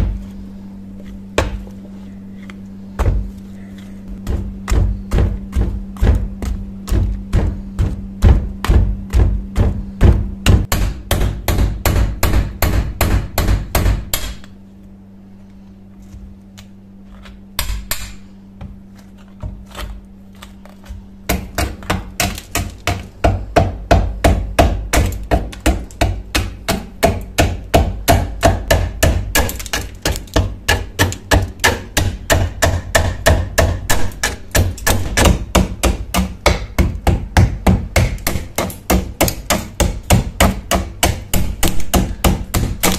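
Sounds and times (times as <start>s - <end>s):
chisel chipping dried mud: 19.0s - 42.9s.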